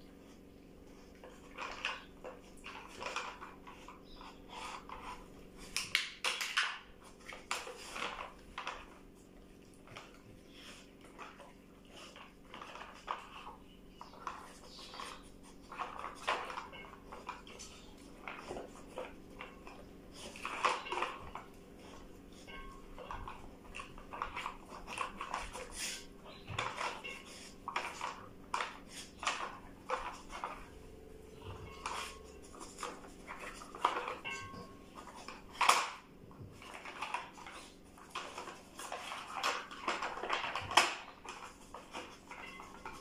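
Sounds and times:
plastic pieces clacking and rattling: 31.5 - 43.0.

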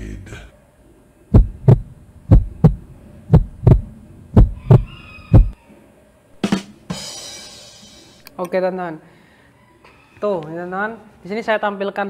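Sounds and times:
heartbeat thumps: 1.3 - 5.6.

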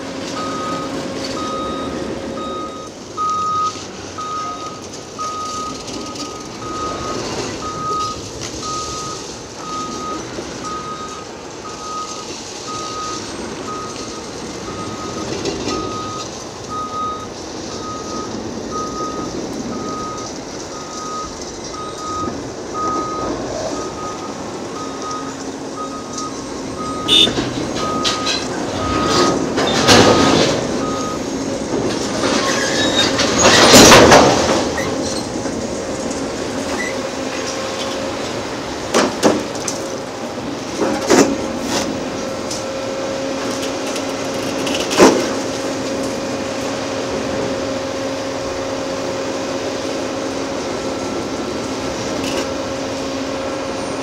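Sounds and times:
diesel engine noise: 0.0 - 54.0
back-up alarm beeping: 0.4 - 31.4.

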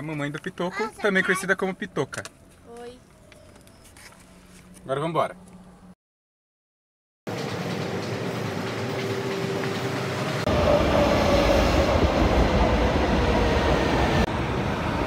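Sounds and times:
metro train rumble and whine: 7.3 - 15.0.

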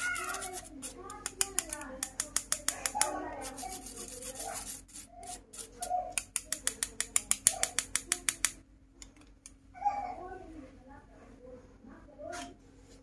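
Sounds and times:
wooden spoon scraping mesh sieve: 0.0 - 7.9.

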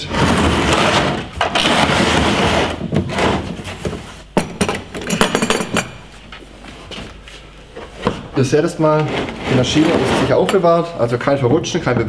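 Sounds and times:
plastic case scraping on tabletop: 0.0 - 3.8, 8.7 - 10.7.

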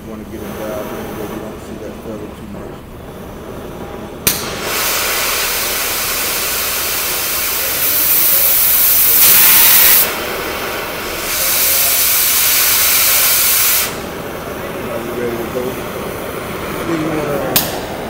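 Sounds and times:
cutting torch flame hissing: 0.0 - 18.0
torch ignition pop: 4.2 - 6.8, 17.4 - 18.0.

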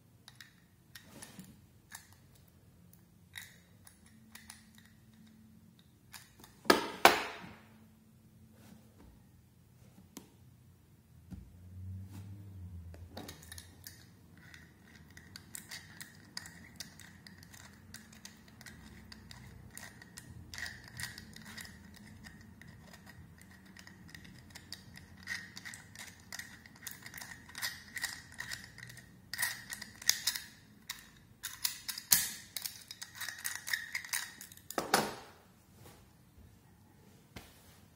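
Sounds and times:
metallic padlock clicks: 13.2 - 34.8
padlock rattle: 13.2 - 34.8.

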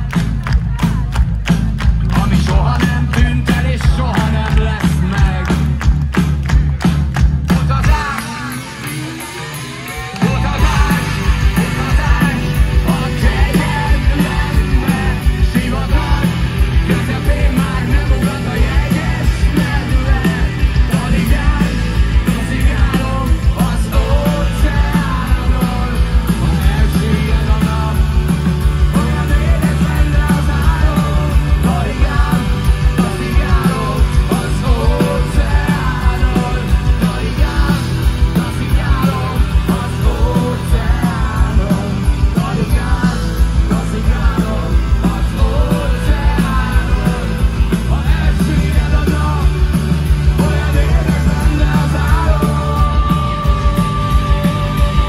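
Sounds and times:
drum beat: 0.0 - 55.0
electric guitars: 0.0 - 55.0
heavy bass: 0.0 - 55.0
person singing: 7.5 - 55.0.

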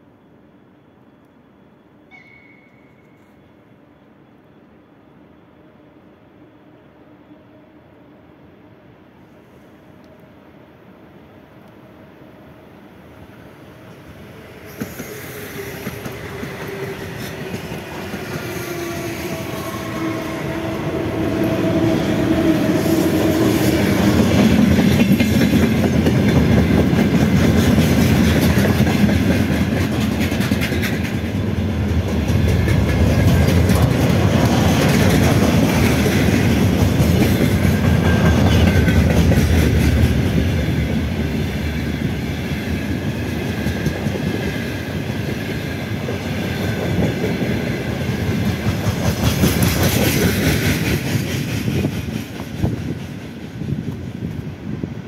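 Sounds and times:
electric locomotive whine: 0.0 - 55.0
freight wagons clickety-clack: 24.3 - 40.4, 46.0 - 54.2.

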